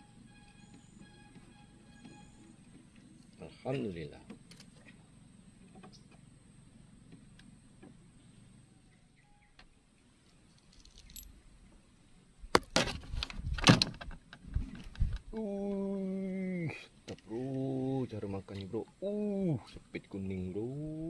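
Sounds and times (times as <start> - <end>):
fishing gear clattering and jingling: 10.5 - 11.3.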